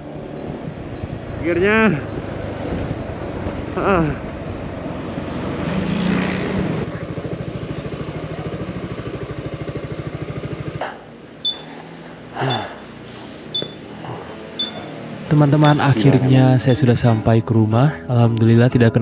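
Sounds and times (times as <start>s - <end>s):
scooter engine idling: 6.0s - 15.2s
short high beeps: 11.4s - 11.7s, 13.5s - 13.9s, 14.6s - 14.9s.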